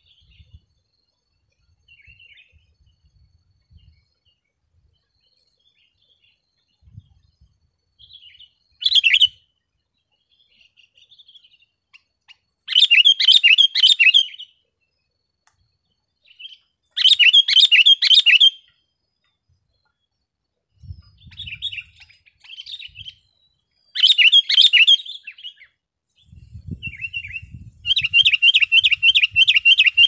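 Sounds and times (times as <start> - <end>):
bulbul singing: 5.2 - 14.6, 15.5 - 20.2, 20.8 - 30.0.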